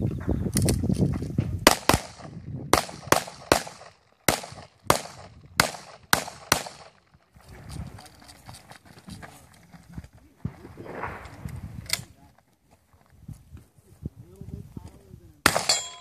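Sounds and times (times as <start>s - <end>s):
pistol shots: 1.7s - 7.0s, 15.4s - 16.0s
low rumble: 10.4s - 12.0s.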